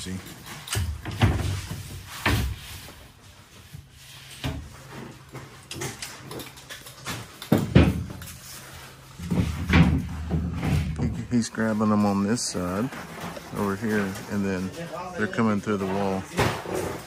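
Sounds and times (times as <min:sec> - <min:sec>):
drywall sheets knocking and thumping: 0:00.8 - 0:02.9, 0:07.5 - 0:08.3, 0:09.2 - 0:11.4.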